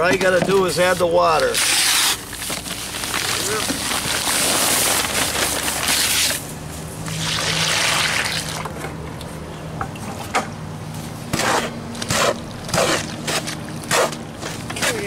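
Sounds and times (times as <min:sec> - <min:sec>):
hoe scraping mortar: 0:00.0 - 0:06.4, 0:11.3 - 0:15.0
dry mortar pouring from bag: 0:01.4 - 0:06.4.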